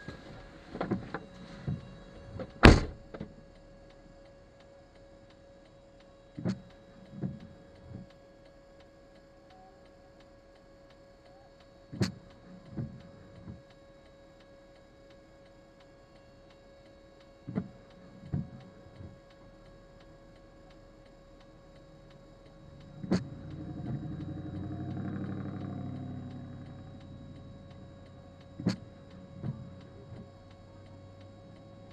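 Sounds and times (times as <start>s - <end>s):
windshield wiper click: 0.1s - 3.3s, 6.4s - 8.1s, 11.9s - 13.7s, 17.5s - 19.2s, 21.0s - 30.6s
wiper blades thumping: 22.6s - 29.7s
vehicle passing: 22.8s - 27.5s.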